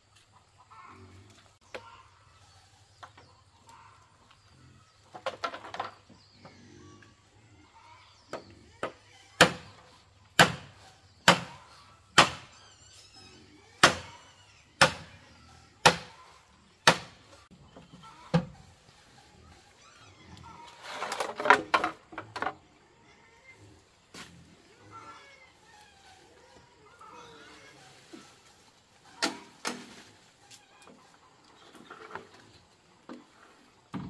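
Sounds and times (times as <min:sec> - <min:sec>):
machete chopping bamboo: 0:09.4 - 0:09.8, 0:10.4 - 0:11.6, 0:12.2 - 0:12.5, 0:13.8 - 0:14.1, 0:14.8 - 0:15.1, 0:15.8 - 0:16.1, 0:16.8 - 0:17.2.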